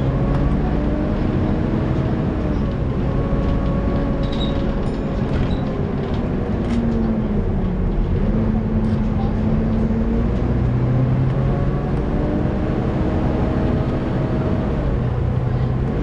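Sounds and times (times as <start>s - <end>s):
bus engine rumble: 0.0s - 16.0s.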